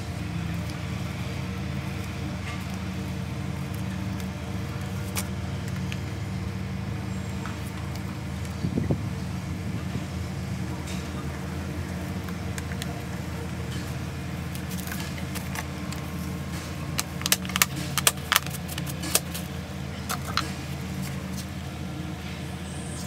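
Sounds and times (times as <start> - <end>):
steady low hum: 0.0 - 23.0
plastic bottle clicking and crackling: 12.1 - 21.5.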